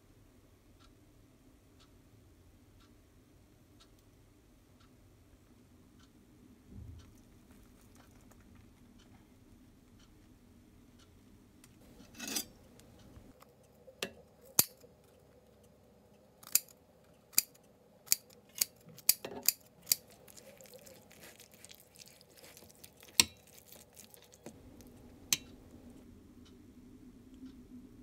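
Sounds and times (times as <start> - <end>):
soft rustle: 20.0 - 25.1.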